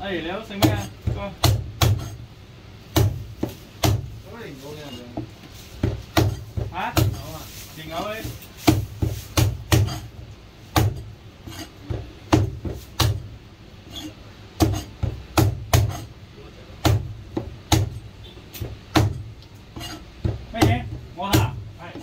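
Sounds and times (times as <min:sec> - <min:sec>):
cleaver chopping on cutting board: 0:00.6 - 0:02.2, 0:03.0 - 0:04.1, 0:05.2 - 0:07.3, 0:08.6 - 0:13.2, 0:13.9 - 0:16.1, 0:16.8 - 0:18.0, 0:18.6 - 0:19.2, 0:19.8 - 0:22.0.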